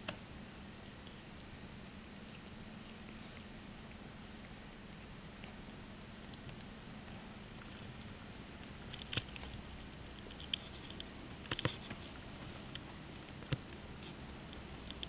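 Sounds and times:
kitten claws scratching carpet: 2.2 - 15.0.

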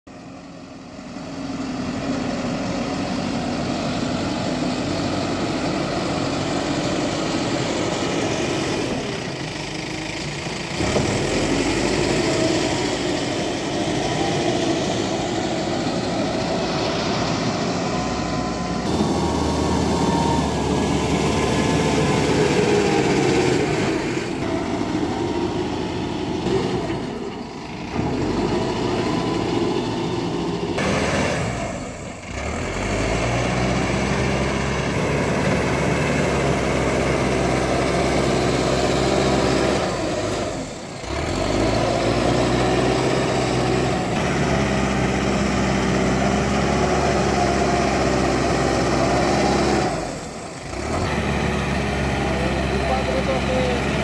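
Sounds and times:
diesel engine under load: 0.1 - 54.0.

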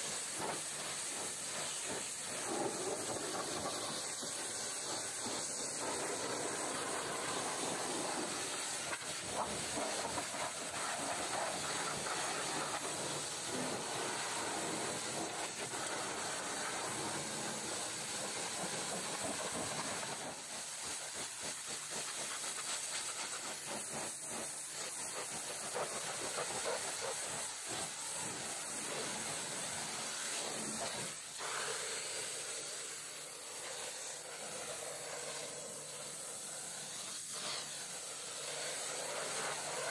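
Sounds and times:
water spattering: 0.0 - 31.6
pressure washer jet hissing: 0.0 - 39.9.

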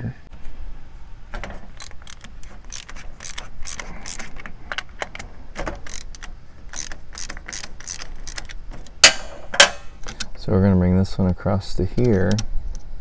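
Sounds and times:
socket ratchet clicking: 1.8 - 9.0.

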